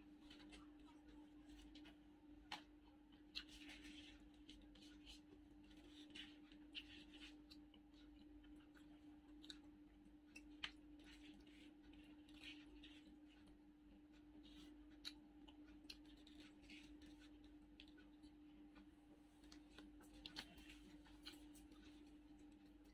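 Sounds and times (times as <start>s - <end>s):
people eating crunchy food: 0.0s - 22.9s
steady low hum: 0.0s - 22.9s
paper wrappers crackling: 19.4s - 22.9s.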